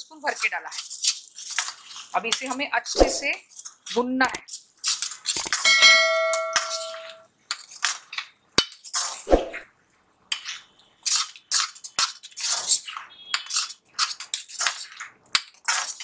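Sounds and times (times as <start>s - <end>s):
spatula scraping paste in pan: 0.2s - 5.4s, 10.3s - 16.0s
spatula clinking on pan: 5.6s - 7.2s.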